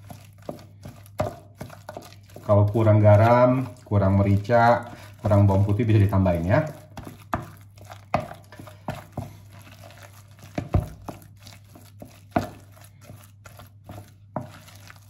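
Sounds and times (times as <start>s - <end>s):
wooden spatula scraping bowl: 0.0s - 15.0s.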